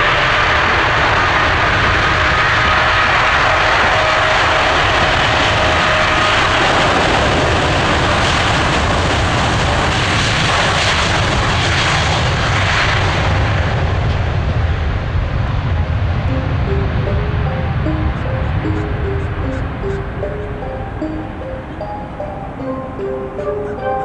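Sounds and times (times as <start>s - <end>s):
jet airliner taking off: 0.0s - 24.0s.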